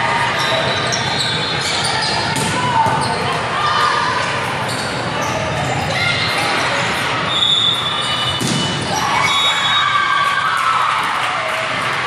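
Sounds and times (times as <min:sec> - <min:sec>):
shoes squeaking on court: 0:00.3 - 0:03.5, 0:04.2 - 0:09.7
volleyball being struck: 0:08.4 - 0:08.9.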